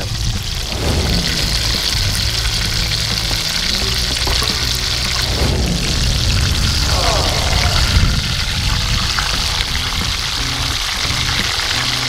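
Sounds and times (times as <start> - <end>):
fish frying in hot oil: 0.0 - 5.3, 8.1 - 12.0
low rumble: 0.0 - 12.0.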